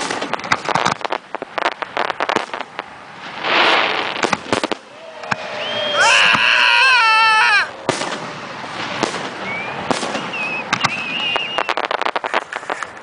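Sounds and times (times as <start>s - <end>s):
firework crackles: 0.0s - 13.0s
firework whistle: 3.4s - 8.1s, 9.0s - 12.9s
short faint whistles: 5.3s - 6.0s, 9.4s - 12.0s
firework shells bursting: 7.8s - 13.0s.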